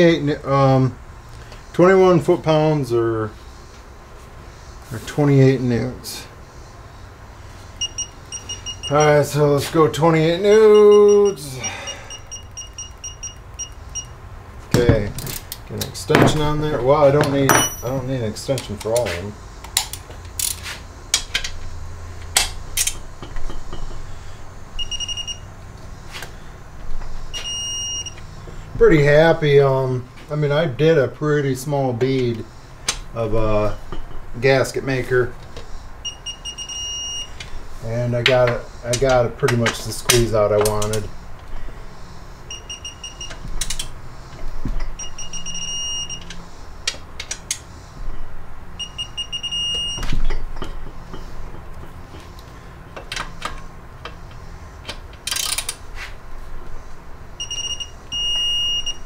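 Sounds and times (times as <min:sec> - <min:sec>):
digital torque wrench beeping: 0:07.8 - 0:09.4, 0:10.2 - 0:14.2, 0:24.8 - 0:25.5, 0:27.3 - 0:28.2, 0:36.0 - 0:37.4, 0:42.5 - 0:43.8, 0:44.9 - 0:46.3, 0:48.8 - 0:50.4, 0:57.4 - 0:59.0
hand tools clinking on bolts: 0:17.2 - 0:19.2
ratchet clicks: 0:53.0 - 0:55.8.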